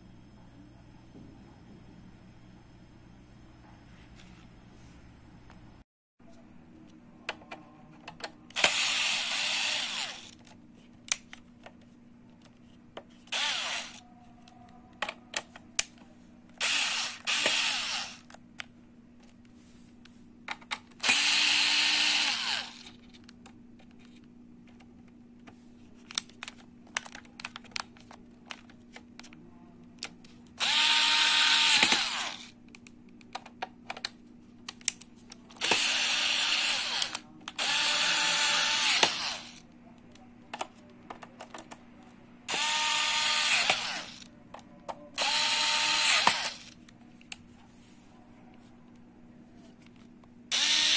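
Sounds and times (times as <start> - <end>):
electric screwdriver turning screws: 8.6 - 10.4, 13.3 - 14.0, 16.6 - 18.3, 21.0 - 23.0, 30.6 - 32.5, 35.6 - 39.6, 42.5 - 44.2, 45.2 - 46.8, 50.5 - 50.9.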